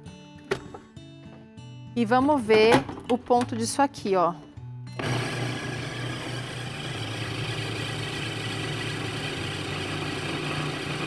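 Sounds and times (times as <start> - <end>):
food processor running: 5.0 - 11.0.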